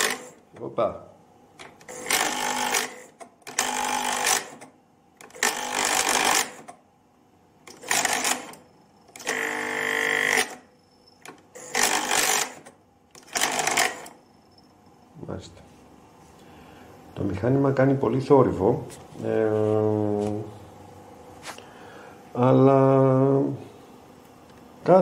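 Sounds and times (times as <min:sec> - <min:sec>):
tape recorder mechanical whirring: 0:00.0 - 0:00.7, 0:01.5 - 0:06.8, 0:07.6 - 0:14.8.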